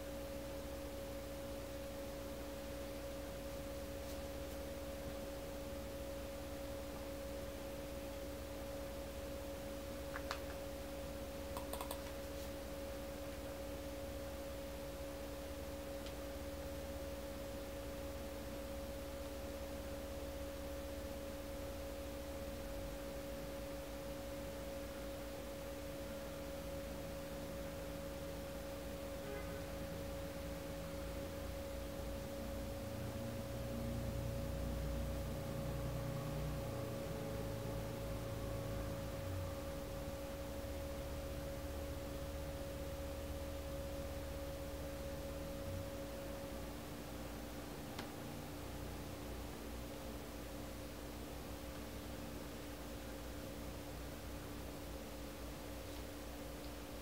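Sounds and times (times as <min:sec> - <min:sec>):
steady two-tone hum: 0:00.0 - 0:57.0
faint clicks: 0:11.6 - 0:12.1.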